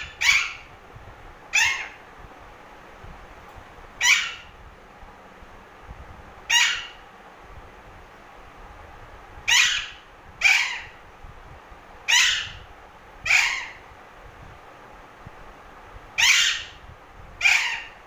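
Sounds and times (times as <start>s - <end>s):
parakeet squawking: 0.0s - 0.7s, 1.5s - 2.0s, 4.0s - 4.6s, 6.5s - 7.0s, 9.4s - 11.0s, 12.1s - 13.8s, 16.2s - 16.8s, 17.4s - 18.0s.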